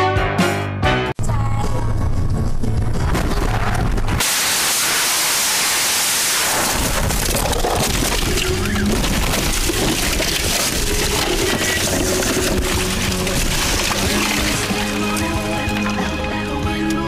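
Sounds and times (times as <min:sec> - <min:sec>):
loud rough rushing noise: 0:02.0 - 0:15.1
knocks and rattles: 0:06.7 - 0:16.2.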